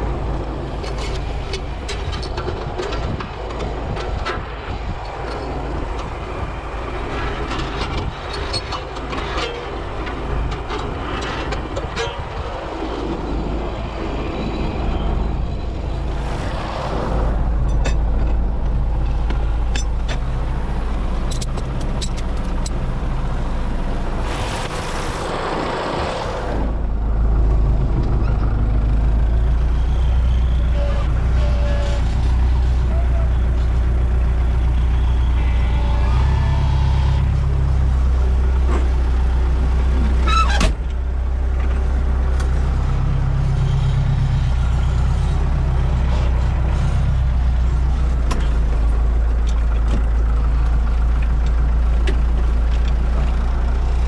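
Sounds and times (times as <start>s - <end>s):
tractor diesel engine running: 0.0s - 54.0s
rattles and clicks: 0.7s - 6.3s, 7.2s - 12.7s, 21.2s - 22.9s.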